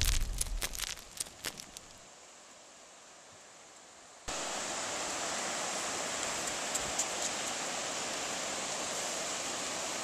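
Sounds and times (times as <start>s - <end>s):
beach surf: 4.3s - 10.0s.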